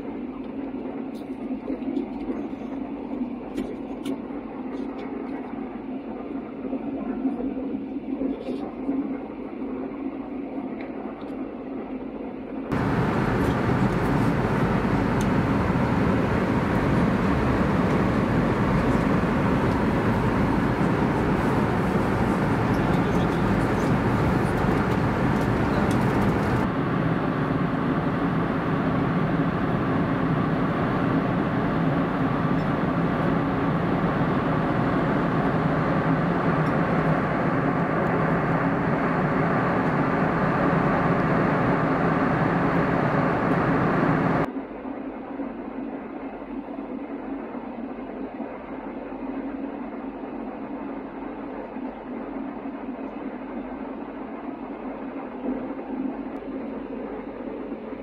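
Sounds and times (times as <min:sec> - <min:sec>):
airflow rush in aircraft cabin: 0:00.0 - 0:58.0
low engine hum: 0:12.7 - 0:44.5.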